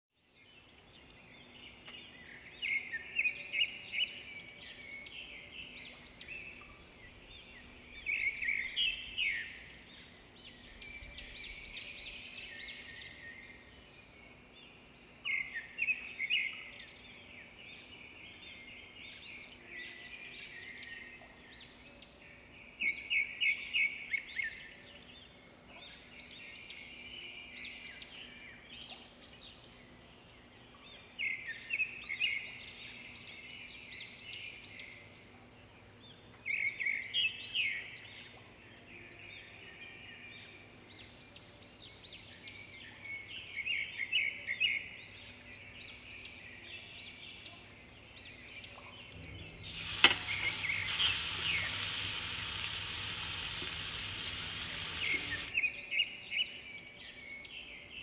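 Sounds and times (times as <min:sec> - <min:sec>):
small birds chirping: 0:45.1 - 0:57.8.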